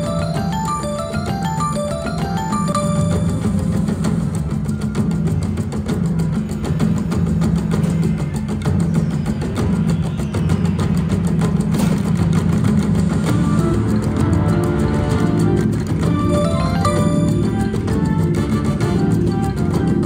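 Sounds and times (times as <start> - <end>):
slot machine music: 0.0 - 5.3, 13.1 - 20.0.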